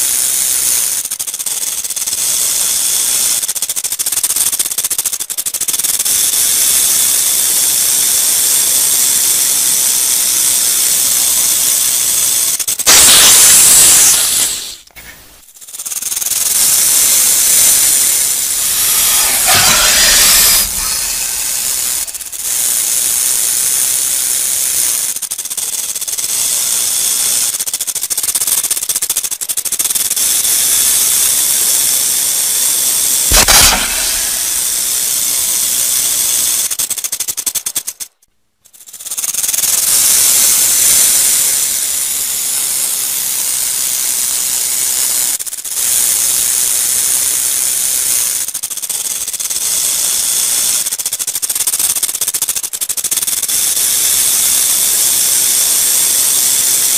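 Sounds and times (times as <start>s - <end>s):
rattlesnake rattling: 0.0s - 56.9s.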